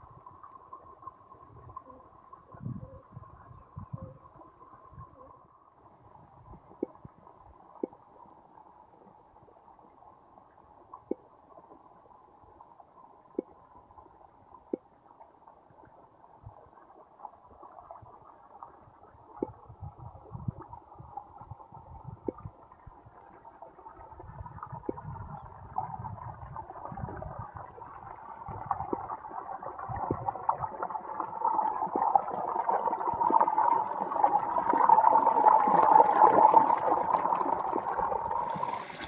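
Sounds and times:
water rushing along a channel: 0:27.3 - 0:39.0.

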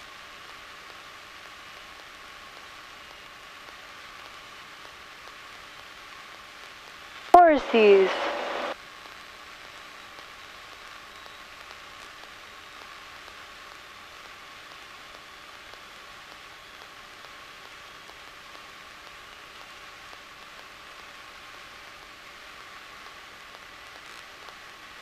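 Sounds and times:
intercom hiss: 0:07.2 - 0:08.8.

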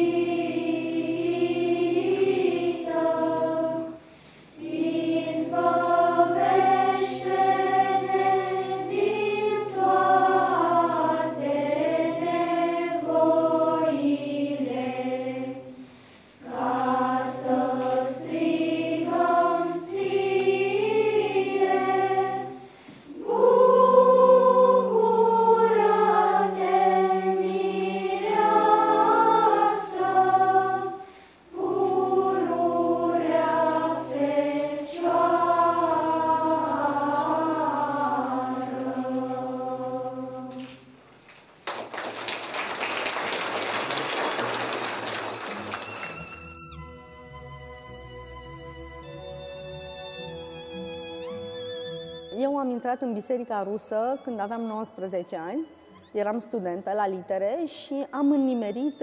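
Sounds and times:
children's choir singing: 0:00.0 - 0:40.9.

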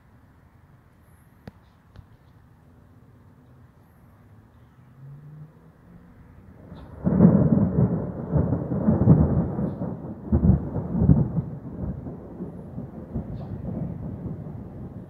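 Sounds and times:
thunder rumbling: 0:06.4 - 0:15.0.

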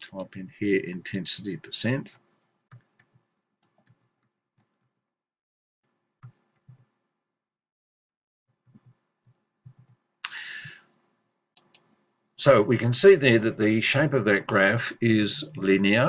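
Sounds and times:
short hiss: 0:10.2 - 0:10.7.

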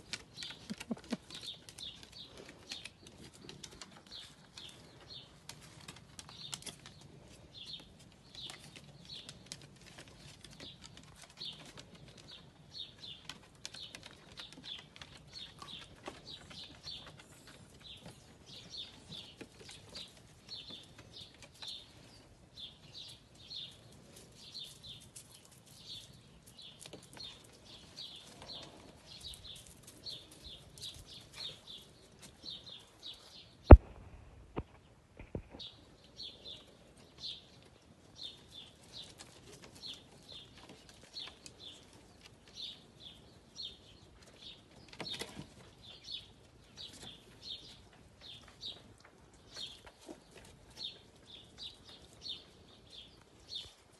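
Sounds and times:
sharp knock: 0:33.7 - 0:34.2.

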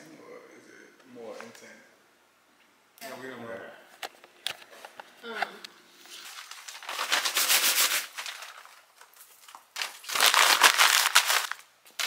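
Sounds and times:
paper crumpling: 0:06.0 - 0:12.0.

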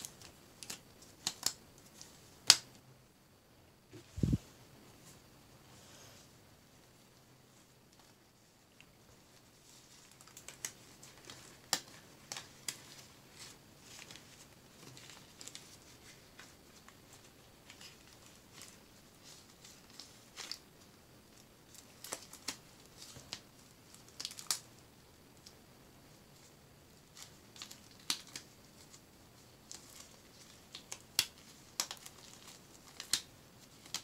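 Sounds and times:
rubber glove snapping and rustling: 0:00.0 - 0:02.8, 0:08.8 - 0:20.7, 0:21.7 - 0:24.7, 0:27.0 - 0:34.0.

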